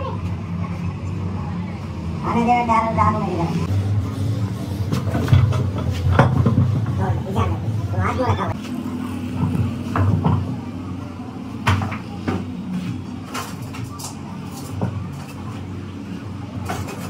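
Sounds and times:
sharp knocks and clatters: 4.9s - 7.2s.

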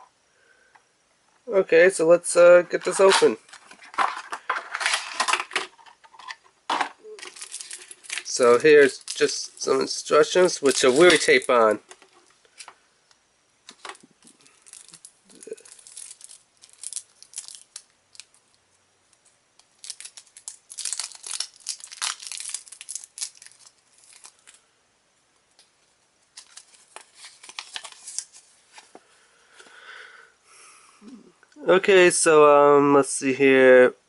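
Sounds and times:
plastic packaging and paper crinkling: 2.6s - 12.8s, 13.7s - 24.6s, 25.5s - 29.0s.

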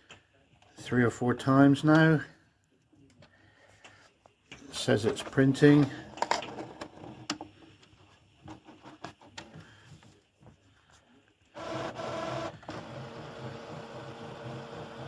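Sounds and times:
printer mechanism whirring: 11.6s - 15.0s.

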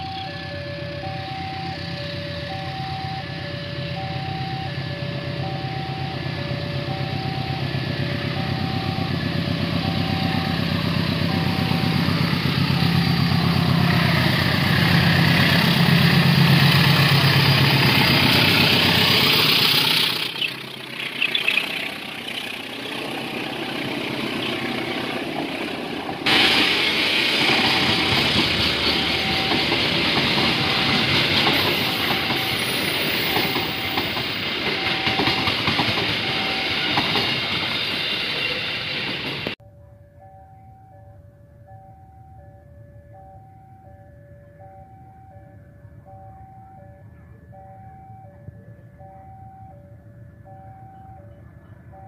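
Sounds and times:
locomotive engine rumble: 0.0s - 39.6s
train wheel noise: 0.0s - 39.6s.

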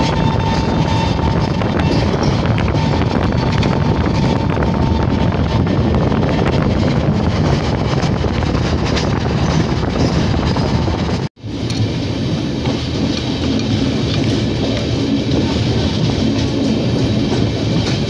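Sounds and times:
rushing air: 0.0s - 18.0s
train wheels clickety-clack: 0.0s - 18.0s.

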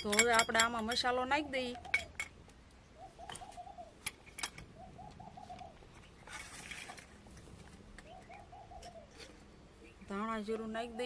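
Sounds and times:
pigeon cooing: 3.0s - 4.0s, 4.7s - 6.0s, 8.0s - 9.4s.

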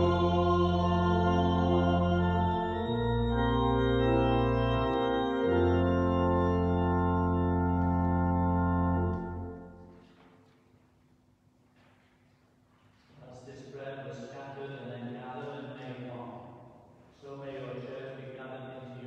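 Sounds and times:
church organ chords: 0.0s - 10.2s.

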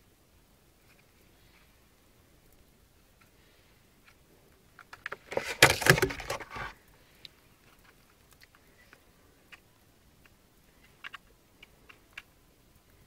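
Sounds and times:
rustling and clattering: 4.0s - 6.8s
faint plastic clicks: 6.8s - 13.0s.

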